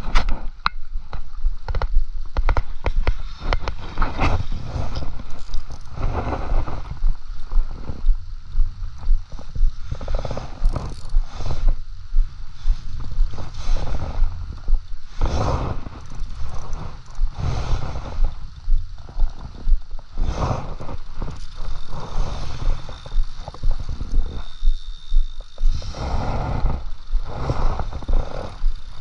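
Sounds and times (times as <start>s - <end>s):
clothing rustling on microphone: 2.6s - 8.1s.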